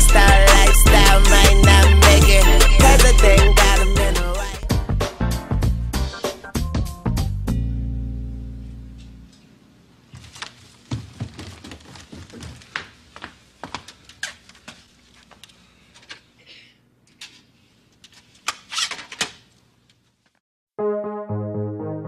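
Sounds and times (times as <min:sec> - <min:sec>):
footsteps: 0:10.1 - 0:16.2.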